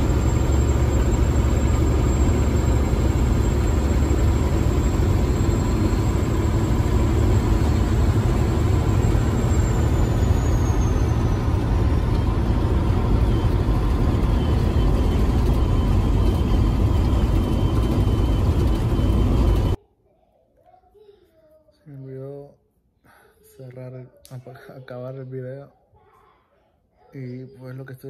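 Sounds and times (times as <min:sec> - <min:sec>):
road noise: 0:00.0 - 0:19.8
truck diesel engine: 0:00.0 - 0:19.8.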